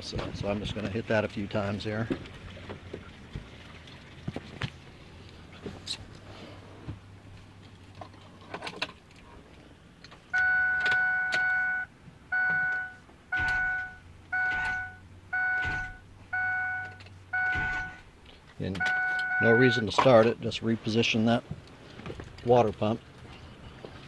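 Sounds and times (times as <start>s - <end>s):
two-tone warning chime beeping: 10.3s - 18.0s, 18.8s - 19.9s
faint low starter thumps: 12.3s - 20.2s.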